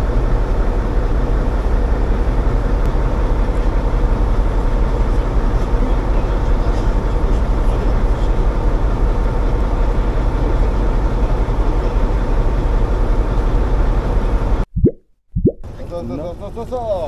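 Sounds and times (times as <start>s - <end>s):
boat engine droning: 0.0s - 14.6s, 15.6s - 17.0s.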